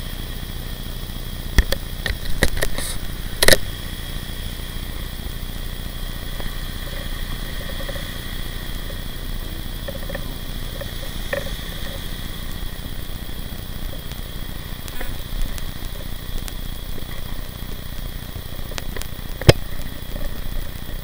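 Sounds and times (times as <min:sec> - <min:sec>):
faint high whine: 0:00.0 - 0:21.0
wind and road noise: 0:00.0 - 0:21.0
knocks and rattles: 0:06.3 - 0:21.0.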